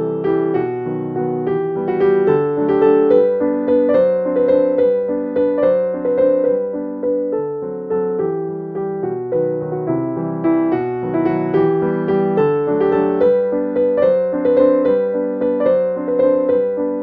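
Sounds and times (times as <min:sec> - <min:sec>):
piano music: 0:00.0 - 0:17.0.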